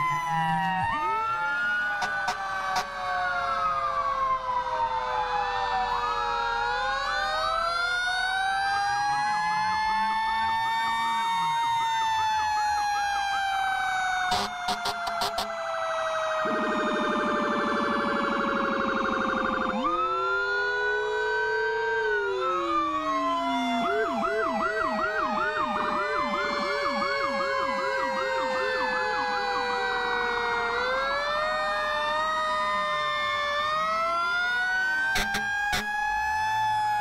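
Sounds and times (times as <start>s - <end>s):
fire truck sirens: 0.0s - 37.0s.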